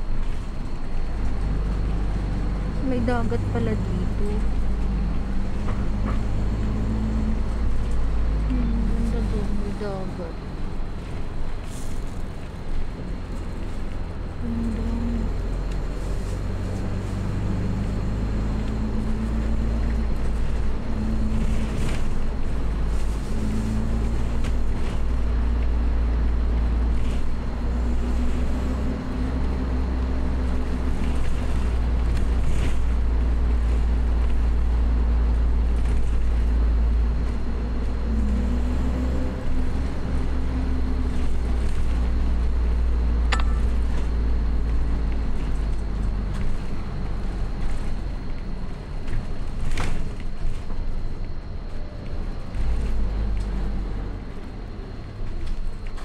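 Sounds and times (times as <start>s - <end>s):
road rumble: 0.0s - 56.0s
vehicle engine hum: 0.0s - 56.0s.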